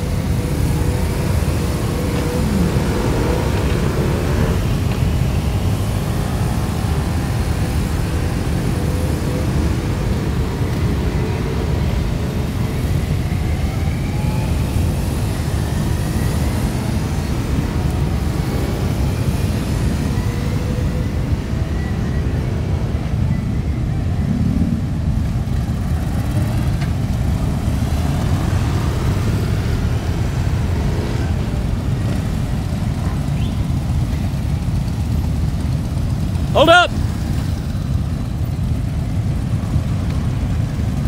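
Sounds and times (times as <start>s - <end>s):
motorcycles riding past: 0.0s - 41.0s.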